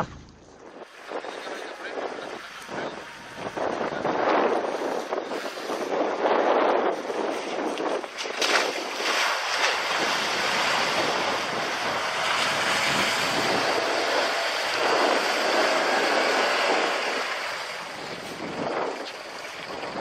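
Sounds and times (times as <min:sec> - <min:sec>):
car engine running: 0:00.0 - 0:00.7, 0:01.7 - 0:04.7, 0:09.5 - 0:20.0
water rushing and splashing: 0:07.0 - 0:20.0.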